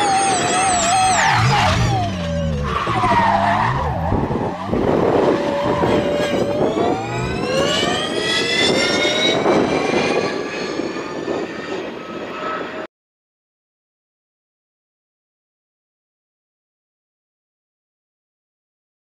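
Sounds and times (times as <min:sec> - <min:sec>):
rally car engine accelerating: 0:00.0 - 0:12.9.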